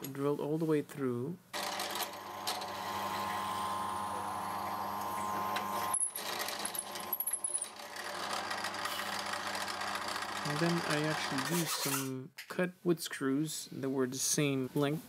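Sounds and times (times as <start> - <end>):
drill press boring wood: 1.6 - 11.9.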